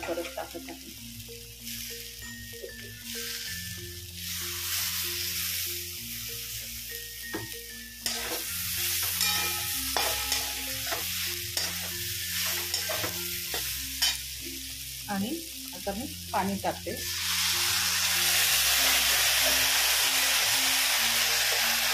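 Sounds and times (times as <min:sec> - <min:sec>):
food sizzling in a pan: 0:00.0 - 0:21.9
spatula scraping a pan: 0:08.0 - 0:14.2.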